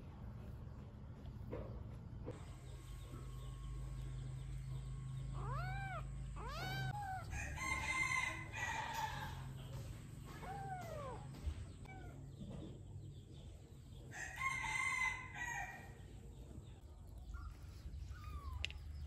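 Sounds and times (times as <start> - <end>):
kitten meowing: 5.3 - 7.3.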